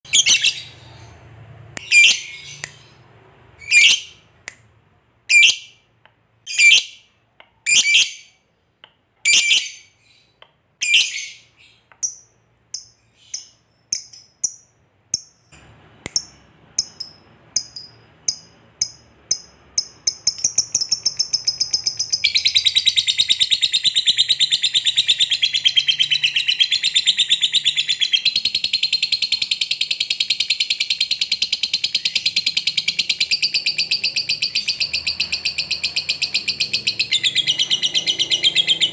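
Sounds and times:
lovebird shrill calls: 0:00.1 - 0:01.1, 0:01.8 - 0:02.9, 0:03.6 - 0:04.2, 0:05.3 - 0:05.7, 0:06.5 - 0:07.0.

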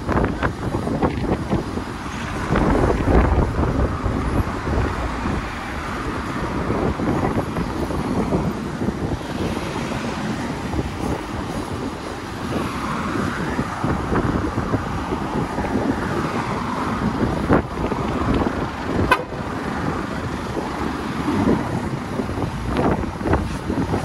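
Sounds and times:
truck engine and road rumble: 0:00.0 - 0:24.0.

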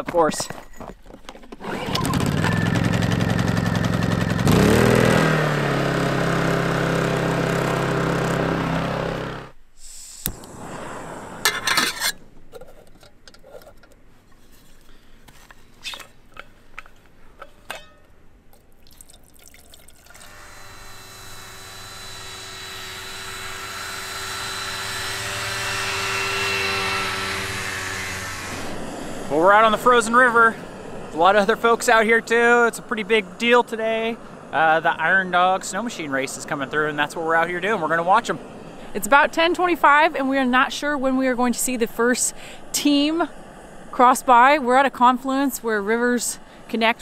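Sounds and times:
generator running: 0:01.5 - 0:09.6, 0:10.2 - 0:12.2, 0:20.1 - 0:46.9
engine drone: 0:01.6 - 0:12.2, 0:20.1 - 0:47.0
liquid pouring: 0:18.5 - 0:20.3.

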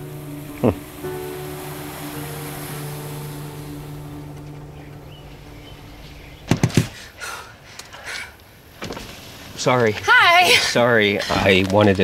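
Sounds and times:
soundtrack music: 0:00.0 - 0:06.6.

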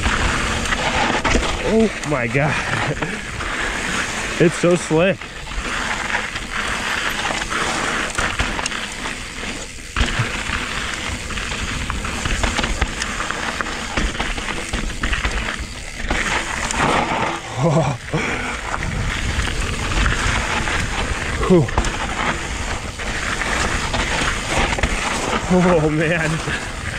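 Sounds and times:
bike rattling: 0:00.0 - 0:26.9
bike tyres crunching on gravel: 0:00.0 - 0:26.9
person exclaiming: 0:17.5 - 0:18.3, 0:21.4 - 0:21.7
wind noise on microphone: 0:18.2 - 0:25.6.

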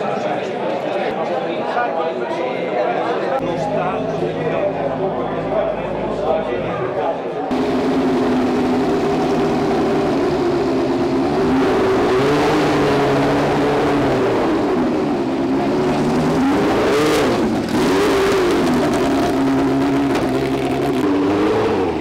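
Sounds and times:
racing car engine idling: 0:07.5 - 0:22.0.

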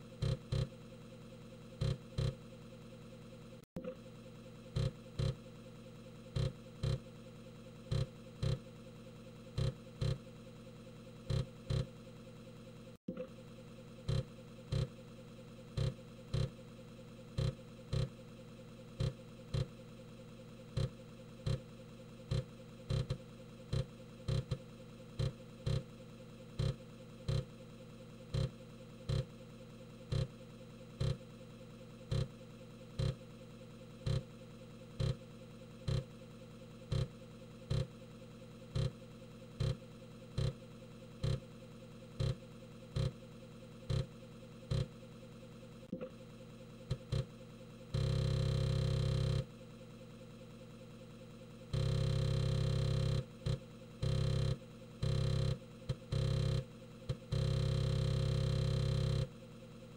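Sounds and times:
floppy drive motor hum: 0:00.0 - 0:00.8, 0:01.7 - 0:02.4, 0:04.6 - 0:05.5, 0:06.2 - 0:07.2, 0:07.8 - 0:08.8, 0:09.6 - 0:10.3, 0:11.2 - 0:12.0, 0:19.0 - 0:19.8, 0:20.7 - 0:25.9, 0:28.2 - 0:29.4, 0:30.0 - 0:30.3, 0:32.0 - 0:32.3, 0:35.0 - 0:35.2, 0:35.8 - 0:36.1, 0:38.7 - 0:39.0, 0:39.6 - 0:40.6, 0:41.2 - 0:41.4, 0:42.2 - 0:43.2, 0:47.9 - 0:49.4, 0:51.8 - 0:59.3.

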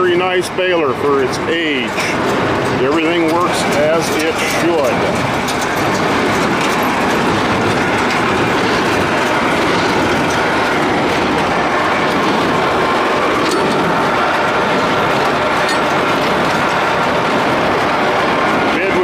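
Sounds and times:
baler mechanical clatter: 0:00.0 - 0:19.0.

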